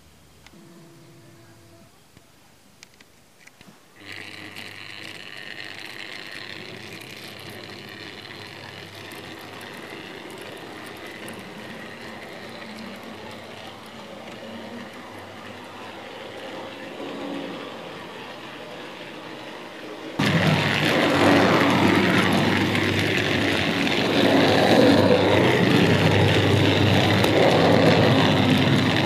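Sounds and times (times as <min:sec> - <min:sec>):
model train motor whining: 0:03.5 - 0:29.0
wheels running on track: 0:04.0 - 0:29.0.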